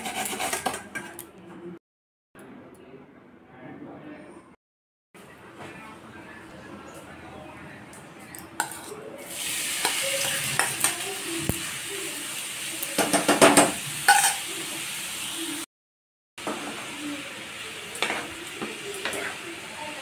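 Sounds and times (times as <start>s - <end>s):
food sizzling in hot oil: 8.6s - 15.7s, 16.4s - 20.0s.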